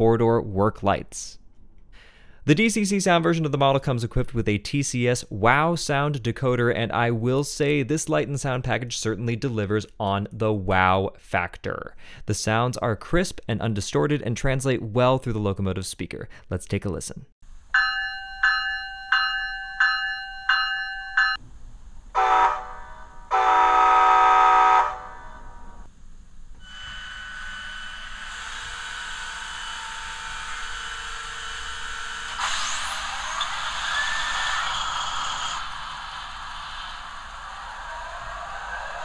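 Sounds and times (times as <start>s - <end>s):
locomotive bell ringing: 17.7s - 21.4s
rising whine: 26.5s - 39.0s
diesel engine starting up: 32.2s - 39.0s.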